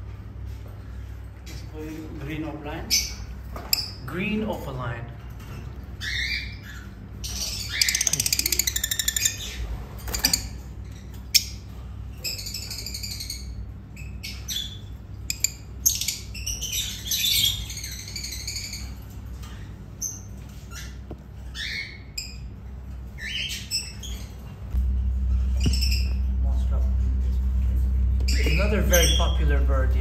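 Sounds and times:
lovebirds squawking and chirping: 2.7 - 4.0, 5.8 - 24.6, 25.3 - 26.3, 28.1 - 29.8.

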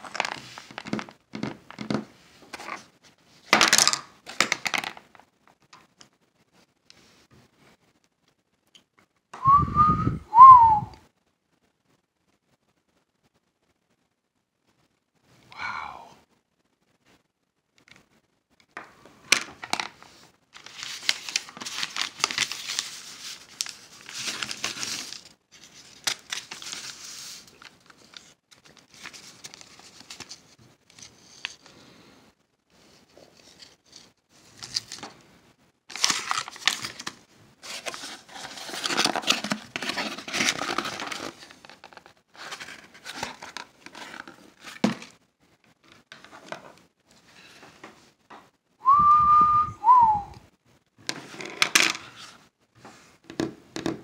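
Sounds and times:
packaging crinkling and rustling: 0.0 - 6.0, 19.3 - 31.7, 33.1 - 35.2, 35.9 - 48.0.

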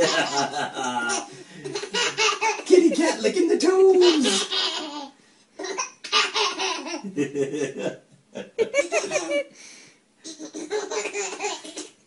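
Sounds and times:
baby giggling: 0.0 - 7.2, 8.5 - 9.5, 10.2 - 12.0.

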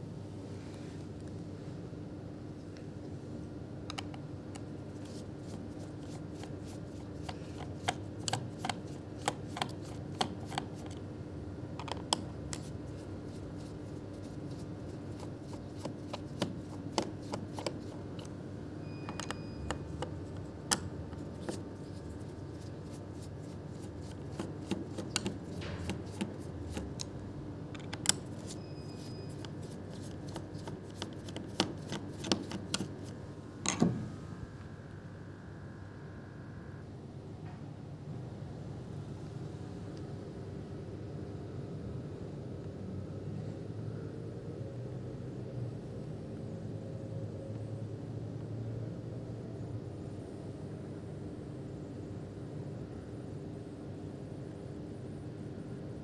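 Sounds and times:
steady low hum: 0.0 - 56.0
laptop keyboard typing: 3.9 - 11.0, 11.8 - 18.3, 18.9 - 27.1, 27.8 - 33.8.

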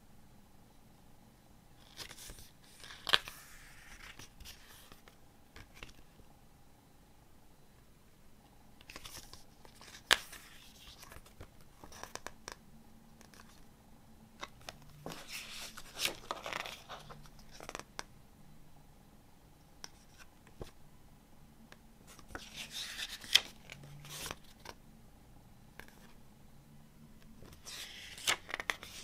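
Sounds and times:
paper pages turning: 1.8 - 6.0, 8.8 - 12.4, 14.4 - 18.0, 22.1 - 24.8, 27.4 - 29.0.

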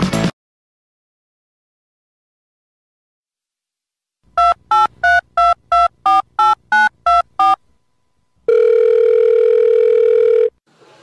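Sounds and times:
phone ringing tone: 4.4 - 7.6, 8.5 - 10.6
touch-tone keypad beeps: 4.4 - 7.6.

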